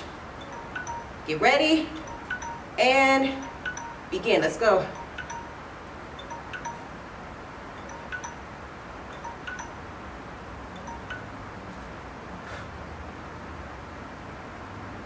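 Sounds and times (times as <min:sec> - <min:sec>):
faint electronic chime tones: 0:00.4 - 0:05.6, 0:06.2 - 0:06.9, 0:07.8 - 0:08.5, 0:09.1 - 0:09.9, 0:10.8 - 0:11.3.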